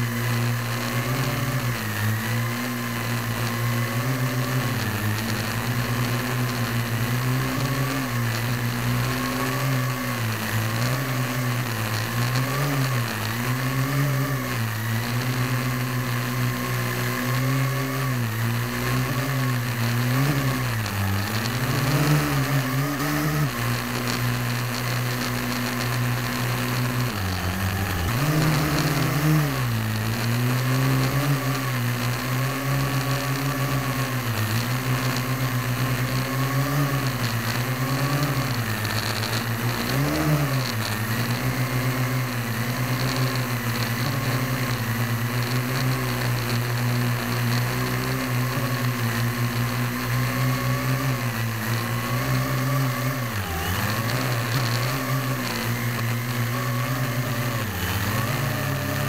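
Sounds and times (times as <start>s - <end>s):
drone motors humming: 0.0s - 59.0s.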